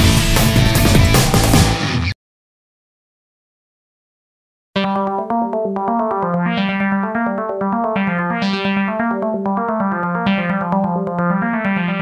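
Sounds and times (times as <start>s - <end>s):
electric piano background music: 4.8s - 12.0s.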